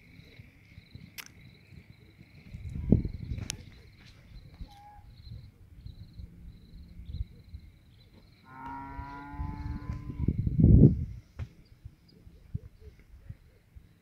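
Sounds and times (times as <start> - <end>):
pulsing insect chirp: 0.0 - 14.0
cow mooing: 8.5 - 10.4.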